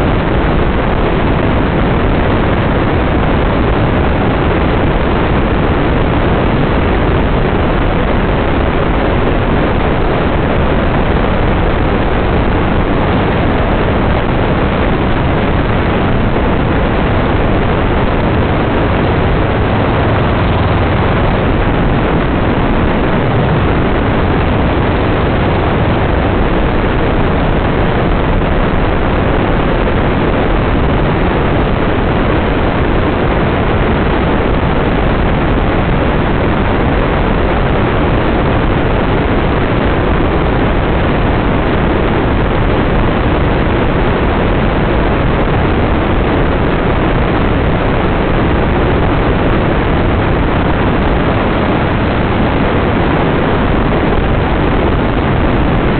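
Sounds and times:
wind rushing on microphone: 0.0 - 55.9
dune buggy engine: 10.6 - 31.6.

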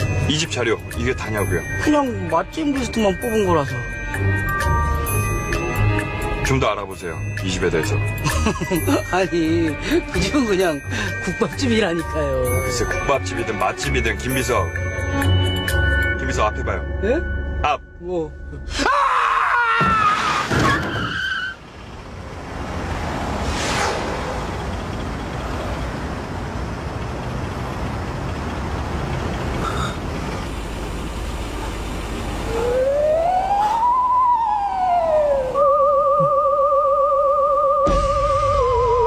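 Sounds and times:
car and street noise: 0.0 - 16.5, 20.0 - 36.8
warbling tone: 32.4 - 37.6
sliding whistle tone: 32.4 - 39.0.

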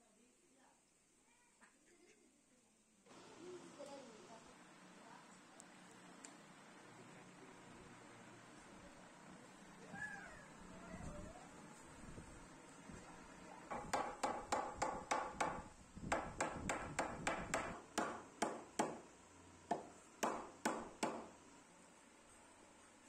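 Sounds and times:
hammer striking wood: 13.7 - 19.1, 19.7 - 21.4.

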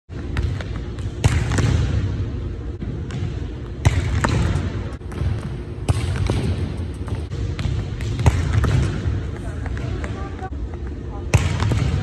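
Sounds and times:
balls bouncing on wooden floor: 3.0 - 12.0.

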